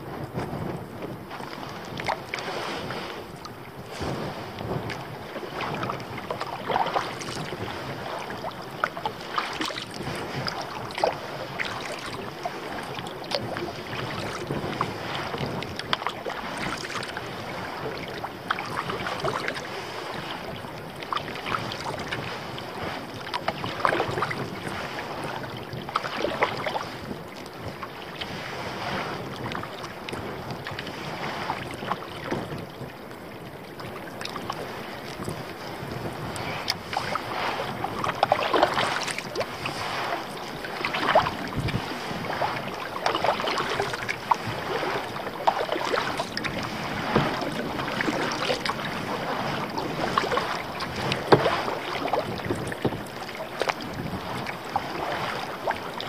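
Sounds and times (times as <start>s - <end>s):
paddle splashes: 0.0s - 56.0s
water lapping against hull: 0.0s - 56.0s
wind noise on microphone: 0.0s - 56.0s.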